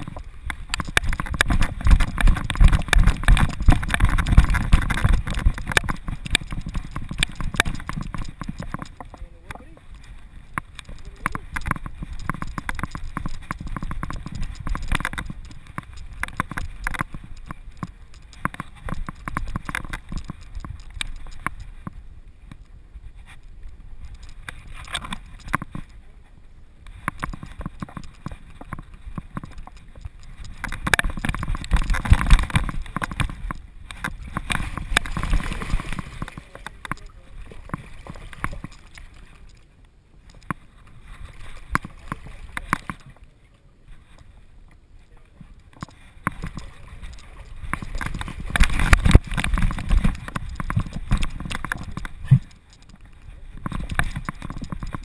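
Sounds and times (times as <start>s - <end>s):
dog footsteps on wooden planks: 0.0s - 22.0s, 27.0s - 39.6s, 45.8s - 55.0s
wind rumbling on microphone: 0.0s - 55.0s.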